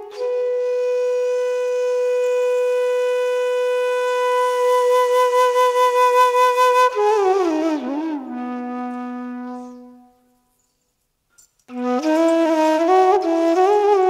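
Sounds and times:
wind instrument long note: 0.0s - 10.3s.

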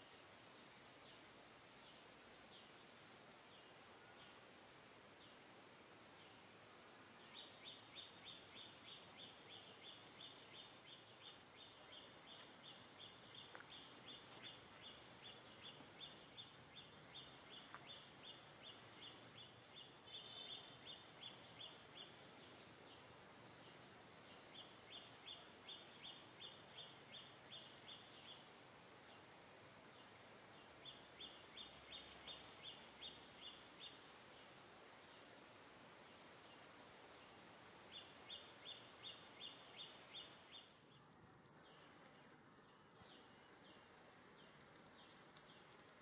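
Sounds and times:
faint outdoor background: 0.0s - 46.0s.

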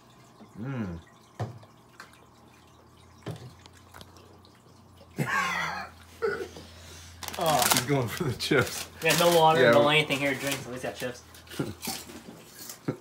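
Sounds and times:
person groaning: 0.6s - 1.0s.

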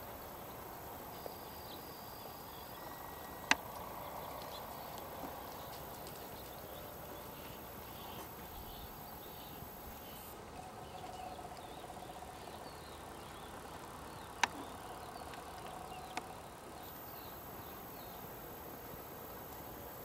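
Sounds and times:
insect trilling: 0.0s - 20.0s
sharp clicks: 3.4s - 6.6s, 14.4s - 14.7s.

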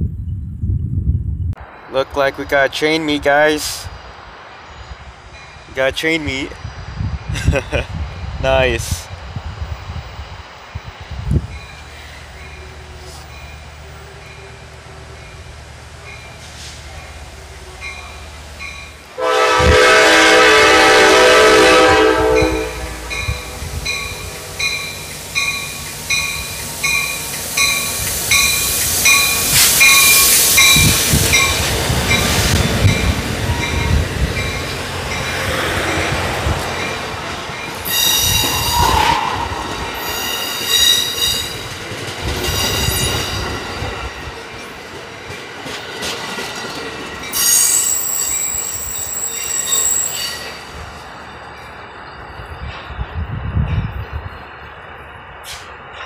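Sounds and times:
train rolling in: 0.0s - 56.0s
locomotive bell ringing: 17.8s - 19.0s, 22.4s - 35.7s, 46.4s - 52.4s
train horn blast: 19.2s - 23.7s
wheel and brake squeals: 37.8s - 41.6s, 47.3s - 50.7s.

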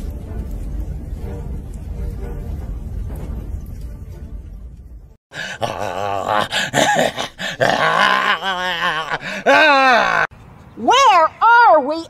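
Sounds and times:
low rumble: 0.0s - 5.2s
man groaning like a zombie: 5.3s - 10.3s.

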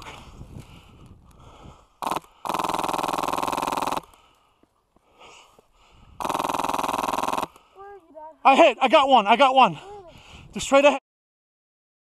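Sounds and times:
airsoft rifle bursts: 2.0s - 4.2s, 6.2s - 7.7s.

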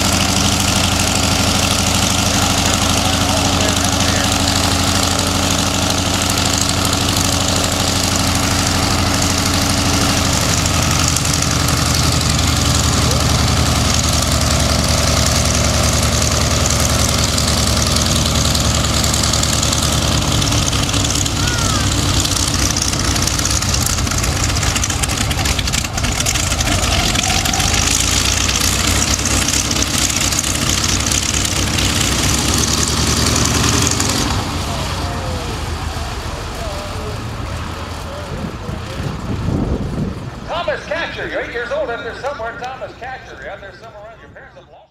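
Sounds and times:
radial aircraft engine running: 0.0s - 44.9s.

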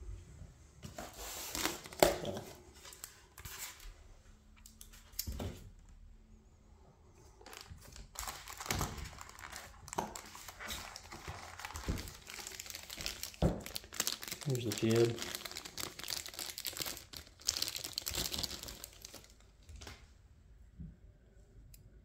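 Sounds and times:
styrofoam rubbing and crinkling: 1.0s - 2.0s, 7.5s - 19.4s.

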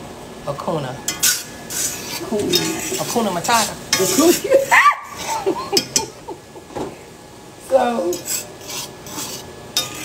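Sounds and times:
utensil scraping a skillet: 1.1s - 6.0s, 7.8s - 10.0s.

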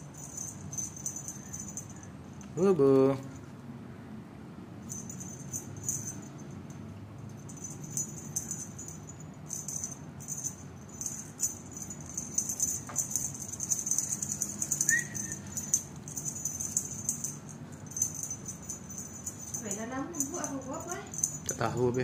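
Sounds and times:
faint high chirp: 14.8s - 15.6s.

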